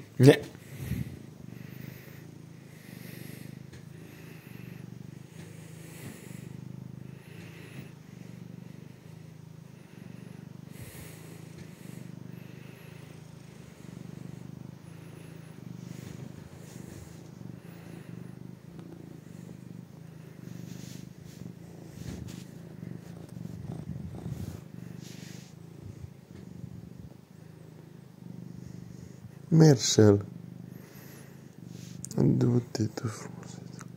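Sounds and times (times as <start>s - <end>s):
cat purring: 0.0s - 33.9s
soft rustles: 15.8s - 26.7s.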